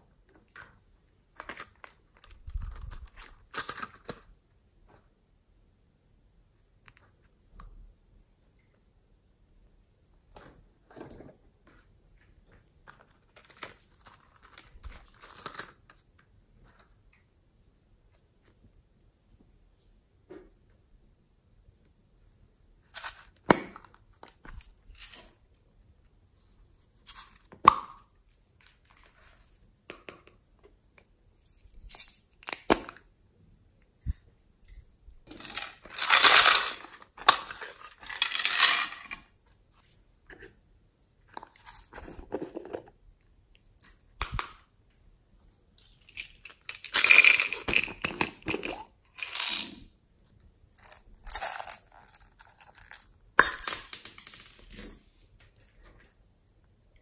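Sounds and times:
beads rattling and scraping: 34.7s - 39.3s, 45.8s - 49.9s, 50.8s - 55.0s.

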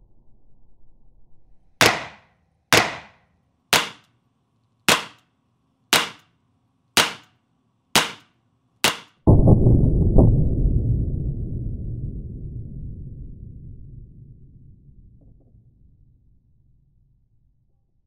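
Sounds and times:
heavy low boom: 9.3s - 17.3s.

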